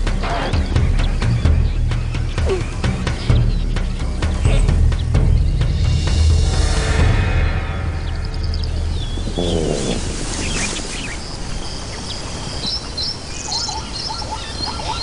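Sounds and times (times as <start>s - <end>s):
background music: 0.0s - 15.0s
small birds chirping: 0.0s - 15.0s
low animal call: 9.2s - 10.8s.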